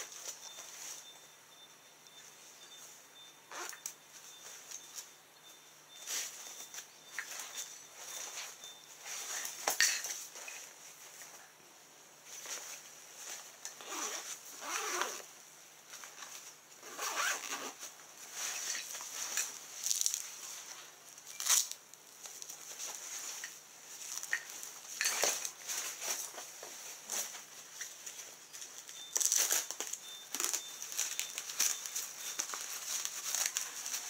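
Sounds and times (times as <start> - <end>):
zippers: 3.5 - 3.9, 13.8 - 15.3, 16.8 - 17.9
cloth rustling and scraping: 3.5 - 5.1, 12.2 - 15.3, 15.9 - 21.7, 22.3 - 34.0.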